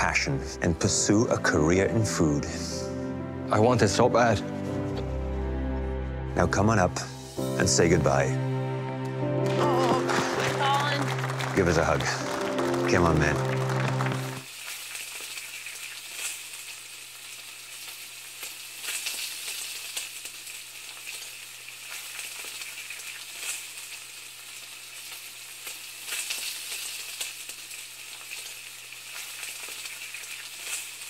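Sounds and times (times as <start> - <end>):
high crackling hiss: 12.2 - 31.0.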